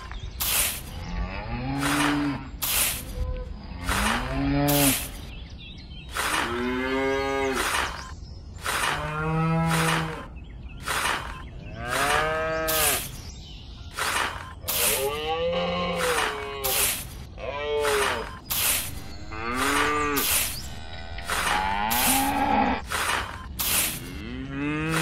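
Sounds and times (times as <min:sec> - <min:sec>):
cattle mooing: 0:01.2 - 0:02.5, 0:18.9 - 0:22.8, 0:24.0 - 0:25.0.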